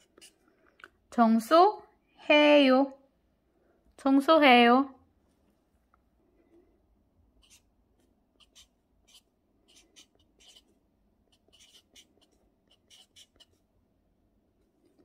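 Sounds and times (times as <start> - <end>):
marker scratching on paper: 0.0 - 0.4, 7.4 - 7.7, 8.4 - 13.7.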